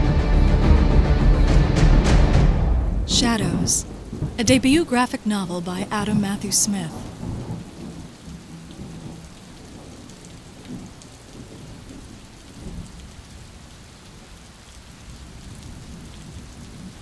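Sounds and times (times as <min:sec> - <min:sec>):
low rolls of thunder: 0:03.1 - 0:04.4, 0:07.0 - 0:13.5
steady rain hissing: 0:03.2 - 0:17.0.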